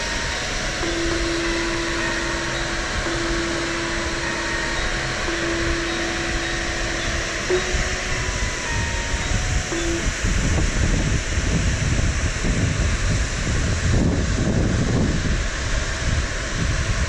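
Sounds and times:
held tone changing pitch: 0.0 - 11.0
waterfall roaring: 0.0 - 17.0.

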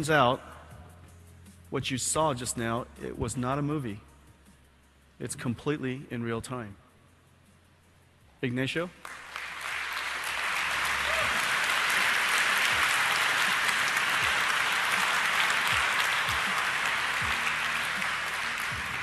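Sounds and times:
audience applauding: 9.0 - 19.0.

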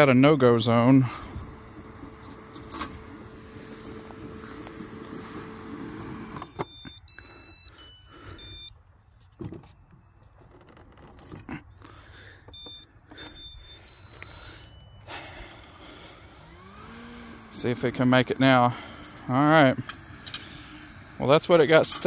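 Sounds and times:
robot mower motor hum: 0.1 - 8.6, 12.5 - 22.0
short electronic beeps: 6.4 - 8.8, 12.5 - 15.2.

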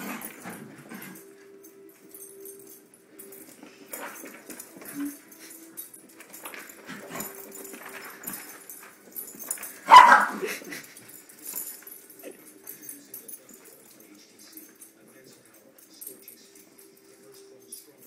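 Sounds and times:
puppy barking: 9.9 - 10.6.

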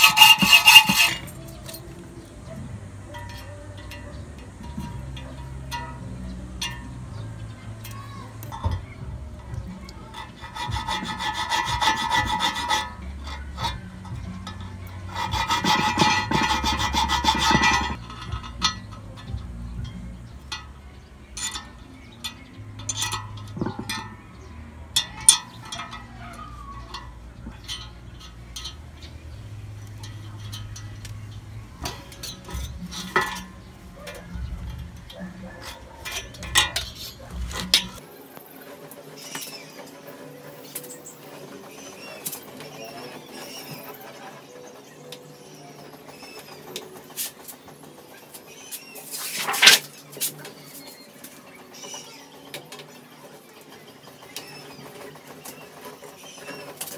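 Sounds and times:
hand file scraping steel: 0.0 - 6.0, 10.1 - 19.0, 22.4 - 24.4, 25.0 - 38.0, 48.3 - 52.1
metal tools clinking on metal sheet: 0.0 - 56.9.

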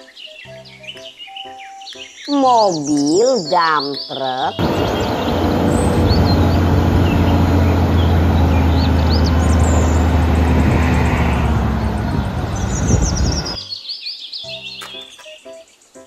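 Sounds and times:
birds chirping: 0.0 - 16.0
diesel truck engine humming: 4.6 - 13.6.

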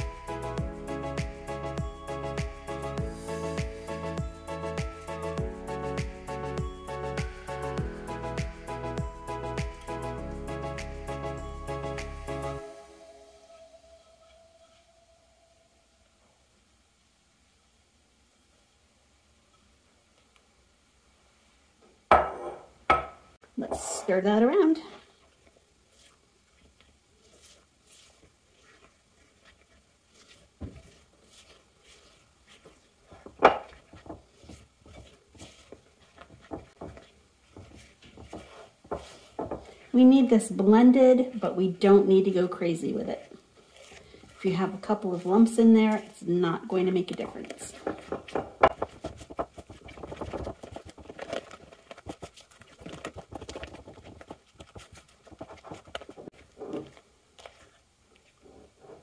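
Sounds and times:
spatula scraping bowl: 25.4 - 58.4.

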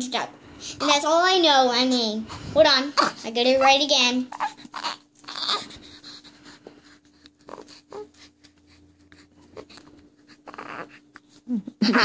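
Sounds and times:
faint hum: 0.0 - 12.0.

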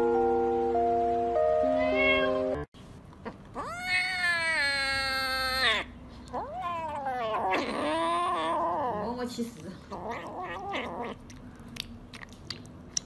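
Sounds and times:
background music with held notes: 0.0 - 2.7
kitten meowing: 1.8 - 2.6, 3.6 - 9.0.

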